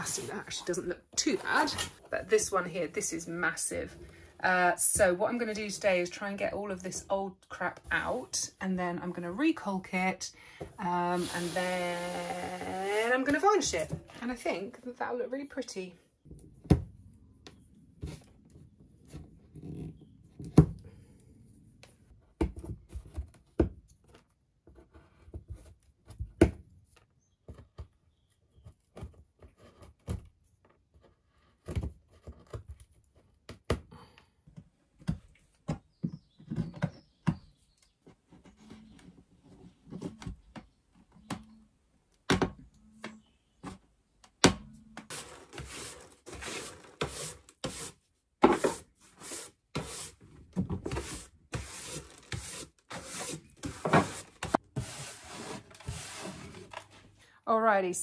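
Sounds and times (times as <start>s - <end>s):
hand brush sweeping floor: 11.1s - 12.9s, 45.1s - 50.2s, 50.9s - 57.0s.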